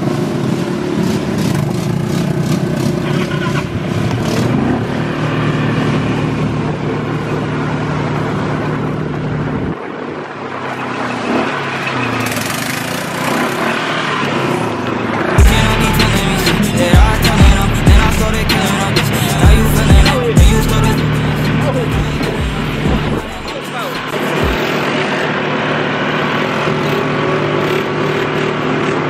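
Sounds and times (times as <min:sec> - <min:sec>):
atv engine running: 0:00.0 - 0:09.8, 0:10.7 - 0:29.0
rough rushing noise: 0:11.1 - 0:26.6.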